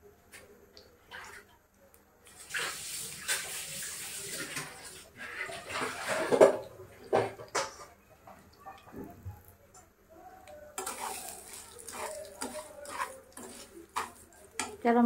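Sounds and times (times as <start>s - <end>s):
water running from a tap: 2.3s - 9.0s, 10.9s - 14.7s.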